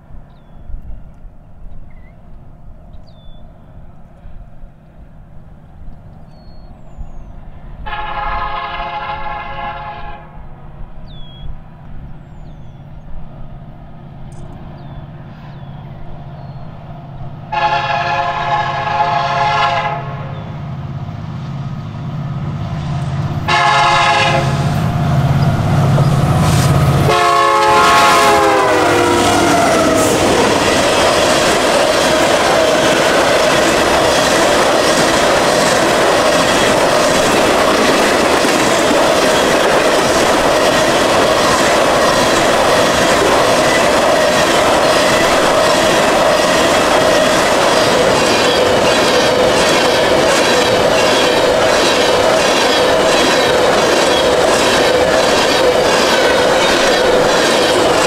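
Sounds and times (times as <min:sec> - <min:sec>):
locomotive horn blasts: 0:07.8 - 0:10.5, 0:17.5 - 0:20.4, 0:23.4 - 0:24.9, 0:27.0 - 0:30.4
locomotive engine rumble: 0:10.5 - 0:58.0
train wheels clattering on rails: 0:22.9 - 0:58.0.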